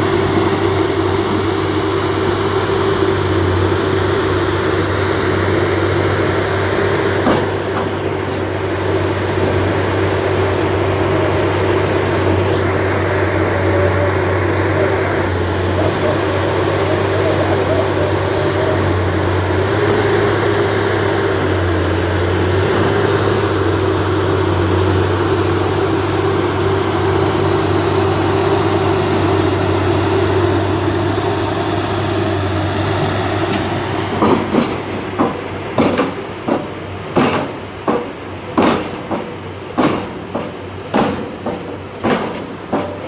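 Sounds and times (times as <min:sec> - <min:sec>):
diesel piling machine engine drone: 0:00.0 - 0:43.0
sharp knocks: 0:33.5 - 0:43.0.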